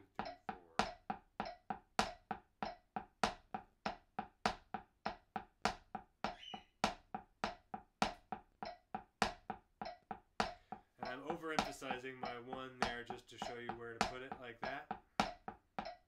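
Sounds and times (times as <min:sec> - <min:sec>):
drumsticks tapping practice pad: 0:00.0 - 0:16.0.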